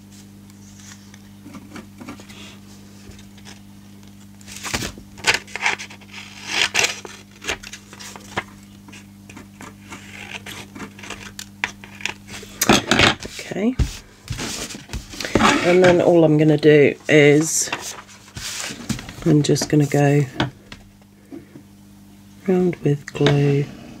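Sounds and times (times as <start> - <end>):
paper rustling: 4.2 - 11.3, 13.2 - 16.1, 17.0 - 20.0.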